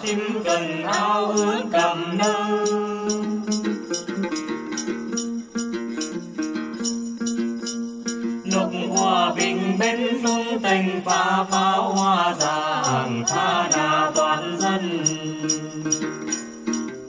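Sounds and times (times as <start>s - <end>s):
person singing: 0.0s - 4.4s, 8.4s - 16.3s
plucked lute: 0.0s - 17.0s
shaken jingle bells: 0.0s - 17.0s.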